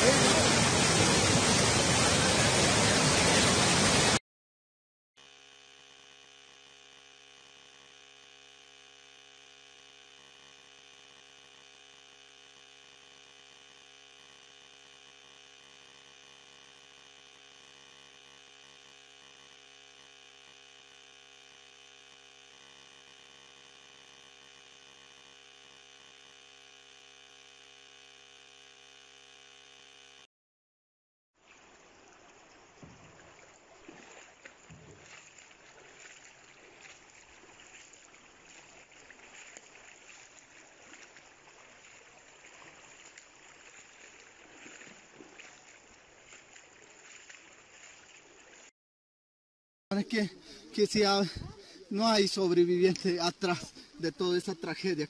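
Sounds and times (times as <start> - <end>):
floodwater flowing and lapping: 31.4 - 48.7.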